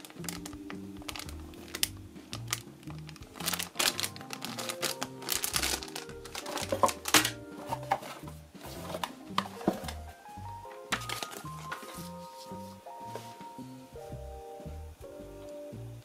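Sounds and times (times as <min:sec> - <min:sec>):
plastic bag crinkling: 0:00.0 - 0:10.0, 0:10.9 - 0:12.2
background music with bass line: 0:00.0 - 0:16.0.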